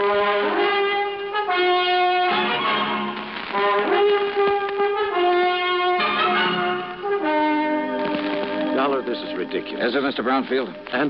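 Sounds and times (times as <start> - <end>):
brass playing held chords: 0.0 - 11.0.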